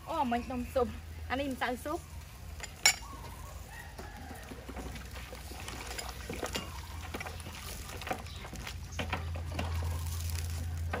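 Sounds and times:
ladle clinking against pot: 2.6 - 3.2
liquid sloshing: 4.4 - 10.4.

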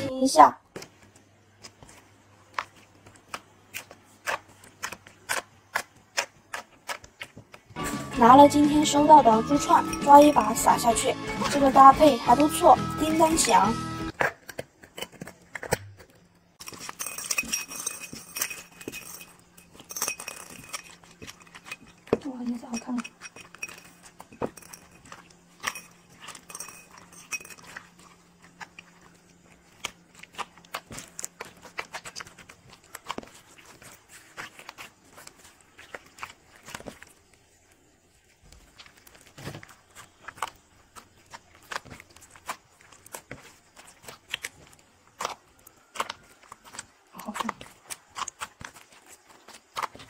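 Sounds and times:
slime kneaded by hand: 0.7 - 12.6, 27.2 - 50.0.

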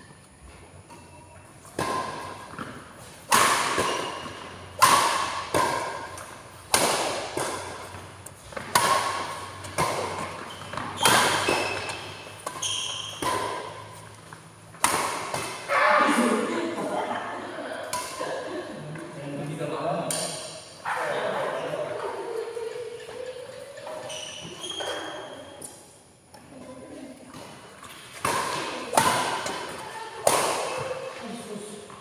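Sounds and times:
badminton racket hitting shuttlecock: 1.7 - 15.7, 17.8 - 18.3, 20.1 - 20.7, 27.3 - 31.2.

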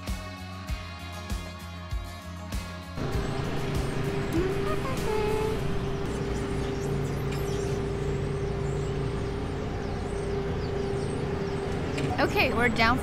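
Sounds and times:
vehicle engines and road noise: 2.9 - 13.0
constant hum: 3.0 - 13.0.

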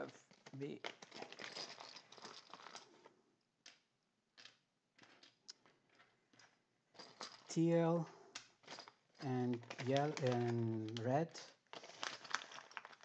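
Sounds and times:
plastic bag rustling: 0.2 - 3.0, 8.6 - 13.0.

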